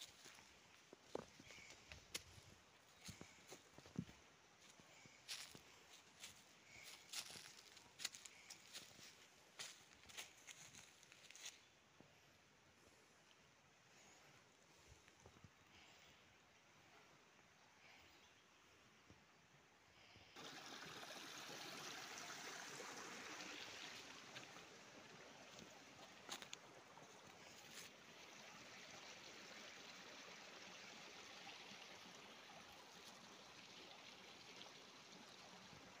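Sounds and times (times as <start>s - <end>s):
small stream rushing: 0.0s - 11.5s, 20.4s - 36.0s.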